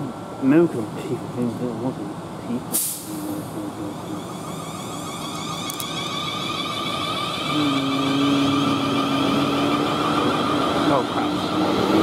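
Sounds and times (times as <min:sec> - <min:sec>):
wheel and rail rumble: 0:00.0 - 0:12.0
low motor hum: 0:01.8 - 0:12.0
electric train traction whine: 0:03.0 - 0:12.0.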